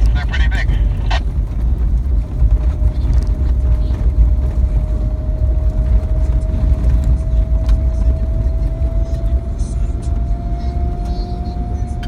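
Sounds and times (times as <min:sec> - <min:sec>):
engine and tyres on gravel: 0:00.0 - 0:12.0.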